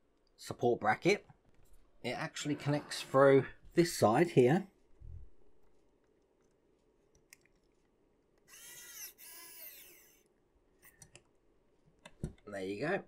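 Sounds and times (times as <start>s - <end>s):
electric screwdriver motor whine: 8.5s - 10.3s.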